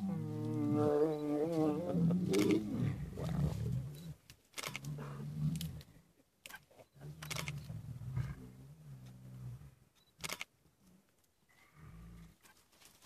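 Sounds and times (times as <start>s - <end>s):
lions growling: 0.0s - 6.0s, 7.0s - 9.8s.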